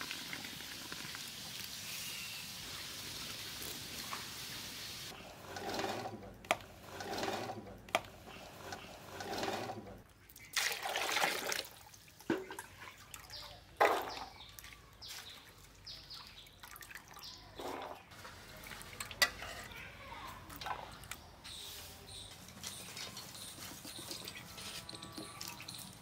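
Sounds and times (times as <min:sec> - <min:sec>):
water pouring: 0:00.0 - 0:06.1, 0:09.2 - 0:19.3.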